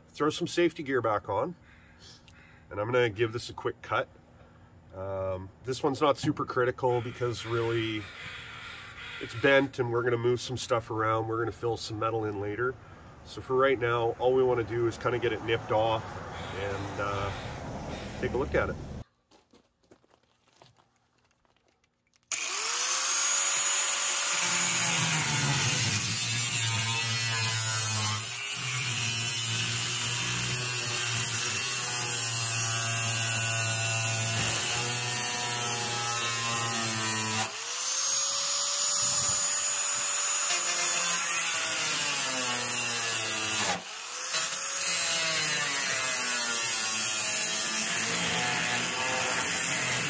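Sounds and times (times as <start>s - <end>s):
angle grinder cutting sheet steel: 6.8s - 9.8s, 22.3s - 50.0s.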